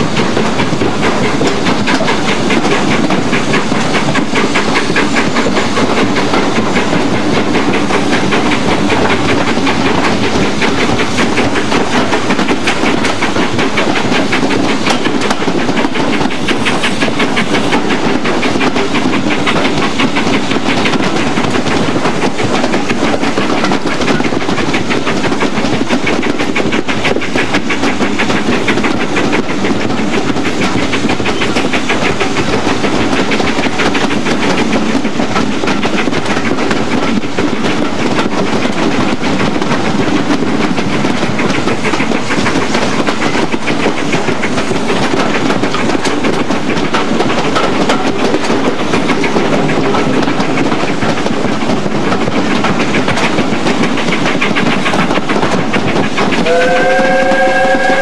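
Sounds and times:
train coaches running on rails: 0.0s - 58.0s
steam locomotive whistle: 56.4s - 58.0s.

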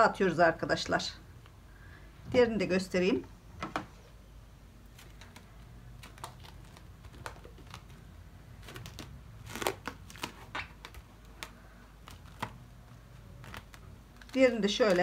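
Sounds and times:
plastic rustle: 4.9s - 15.0s.

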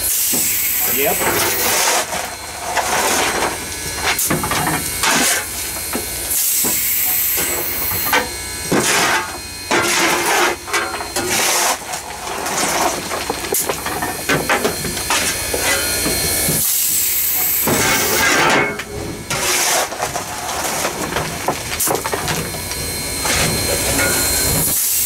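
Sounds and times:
steam hissing: 0.0s - 2.1s, 3.8s - 8.2s, 14.2s - 18.3s, 22.8s - 25.0s
steam rushes: 6.1s - 8.2s, 14.4s - 18.3s, 23.3s - 25.0s.

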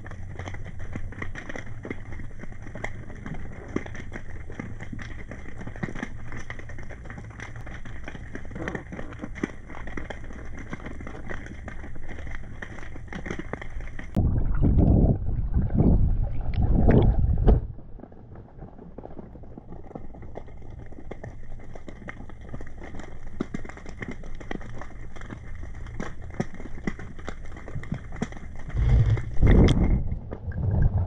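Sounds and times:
small crackling clicks: 0.0s - 14.2s, 18.0s - 30.9s
muffled underwater water rumbling: 13.8s - 21.8s, 27.4s - 31.0s.

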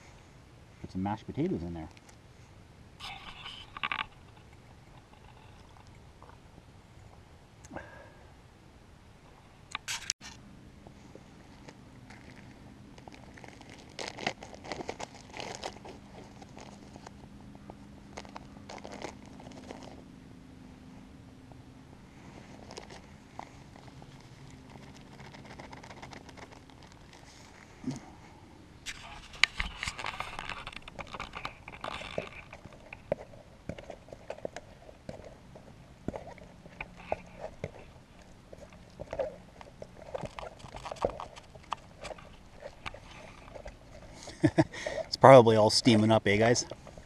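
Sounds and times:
faint steady hum: 0.0s - 47.0s
plastic bag crinkling: 11.6s - 17.2s, 18.1s - 20.0s, 22.5s - 27.7s, 28.9s - 34.9s.

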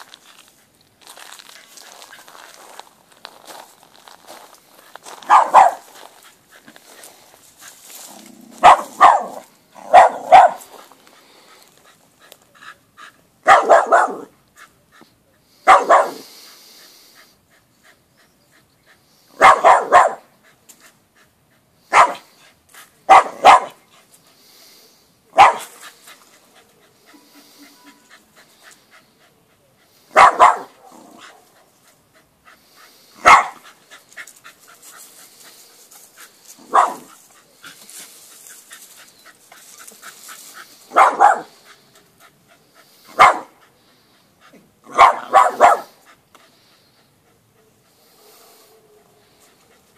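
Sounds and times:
dog barking sharply: 5.3s - 5.8s, 8.6s - 10.6s, 13.4s - 14.3s, 15.7s - 16.2s, 19.4s - 20.2s, 21.9s - 22.2s, 23.1s - 23.8s, 25.4s - 25.7s, 30.2s - 31.3s, 33.2s - 33.6s, 36.7s - 37.1s, 40.9s - 41.5s, 43.2s - 43.5s, 44.9s - 45.9s.

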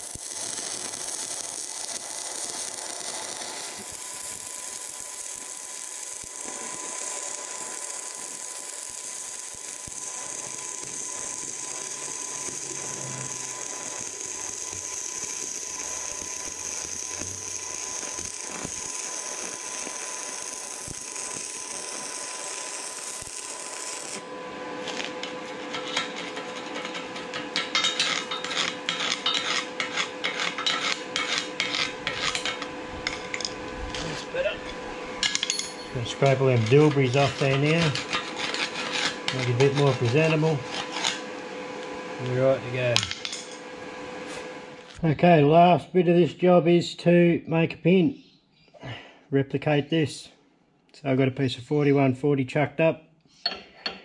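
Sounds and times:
welding arc crackling hiss: 0.0s - 45.0s
screwdriver scraping slag: 2.0s - 24.2s, 24.8s - 41.3s.

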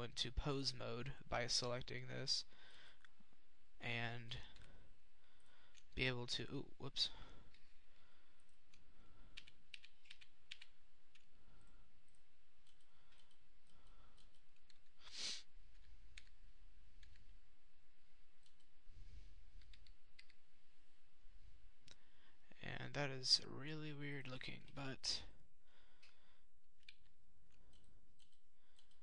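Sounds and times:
computer mouse and keyboard clicks: 8.4s - 15.0s, 15.7s - 17.4s, 18.3s - 18.8s, 19.6s - 20.4s, 26.8s - 29.0s.

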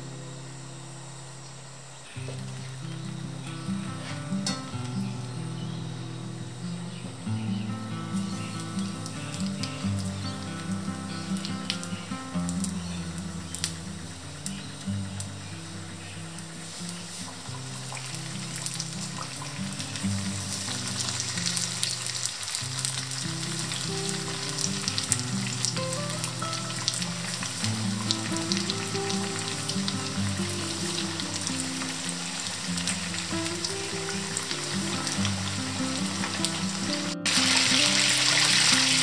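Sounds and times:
food deep-frying in oil: 8.2s - 15.5s, 16.3s - 39.0s.

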